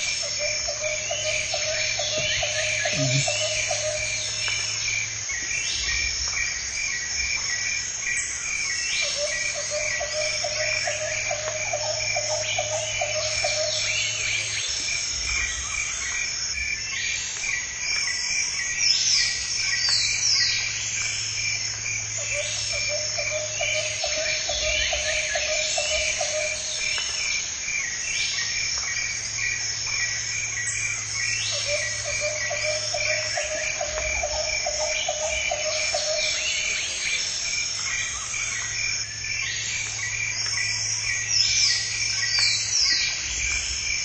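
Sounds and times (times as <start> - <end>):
bird calls: 0.0 - 4.8, 30.6 - 38.8
frog chorus croaking: 0.0 - 44.0
pulsing insect trill: 0.0 - 44.0.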